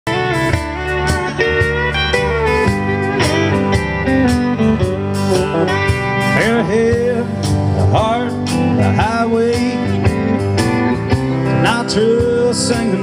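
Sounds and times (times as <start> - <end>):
country band playing: 0.0 - 13.0
steel guitar sliding: 0.1 - 9.0.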